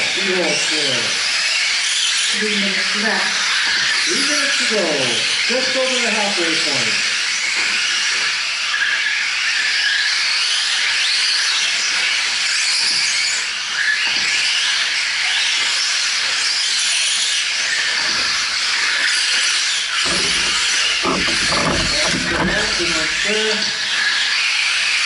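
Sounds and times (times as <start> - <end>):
rc trucks motors whining: 18.3 - 24.4.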